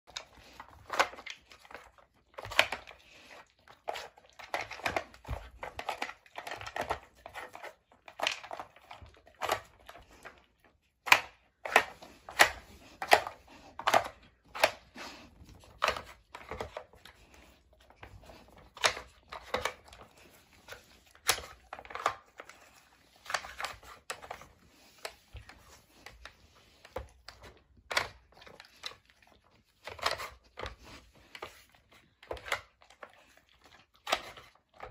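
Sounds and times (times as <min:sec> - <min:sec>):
plastic puzzle toy clicking and scraping: 0:00.0 - 0:34.9
dog sniffing: 0:11.8 - 0:19.0.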